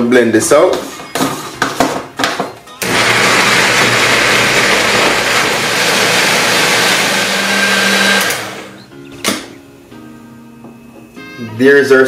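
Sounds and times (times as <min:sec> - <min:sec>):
blender motor running: 0:02.8 - 0:08.8.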